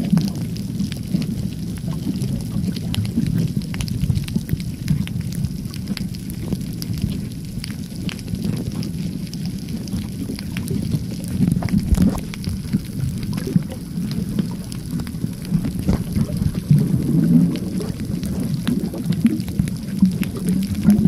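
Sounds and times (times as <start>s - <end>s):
faint clicks and crackles: 0.0s - 21.0s
underwater rumble of moving water: 0.0s - 21.0s.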